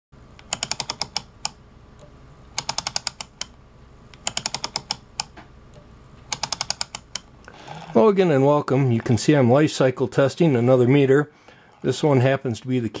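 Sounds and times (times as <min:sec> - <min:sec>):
faint steady hum: 0:00.2 - 0:13.0
rotary switch clicking: 0:02.6 - 0:07.3.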